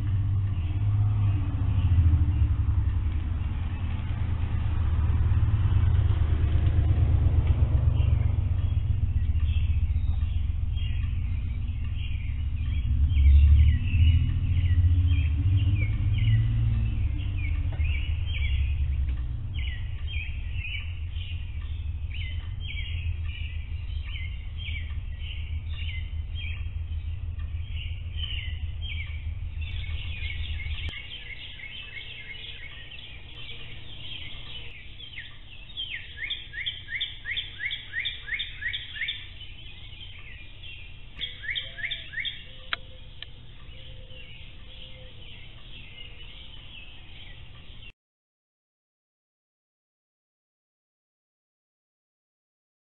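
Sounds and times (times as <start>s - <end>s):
low rumble: 0.0s - 47.9s
birds chirping: 0.0s - 48.0s.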